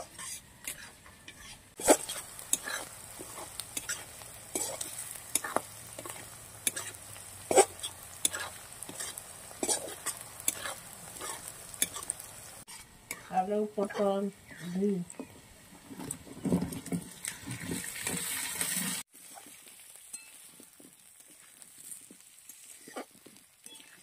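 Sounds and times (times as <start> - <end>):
metal spatula scraping a pan: 0.0 - 15.4
onions sizzling in hot oil: 1.7 - 24.0.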